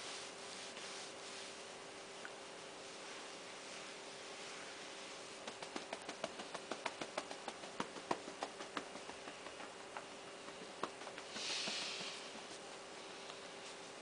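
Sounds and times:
soft hiss: 0.0s - 14.0s
hands tapping a back: 5.4s - 12.7s.

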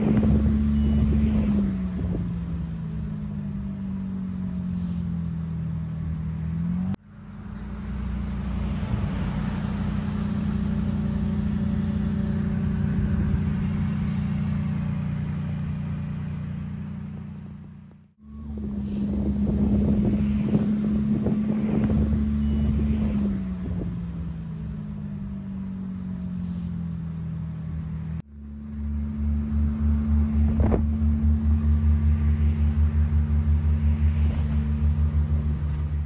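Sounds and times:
motor droning: 0.0s - 36.0s
air rushing past: 7.4s - 23.8s.

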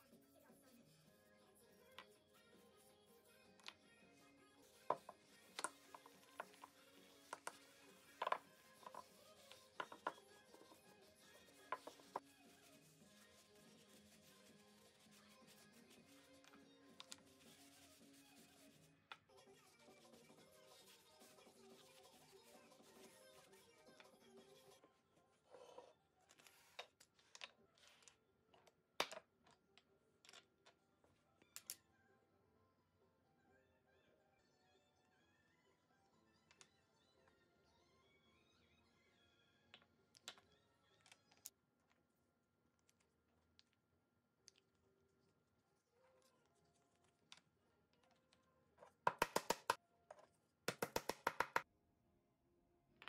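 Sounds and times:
hammer tapping wooden pin: 49.1s - 49.8s, 50.7s - 51.6s.

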